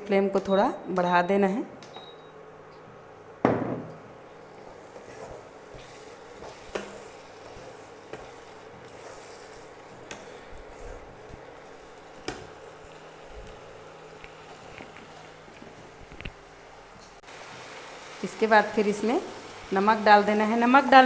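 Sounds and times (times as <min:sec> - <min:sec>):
sauce sizzling in a pan: 0:04.4 - 0:14.5, 0:17.2 - 0:21.0
wooden spatula stirring: 0:04.6 - 0:15.3.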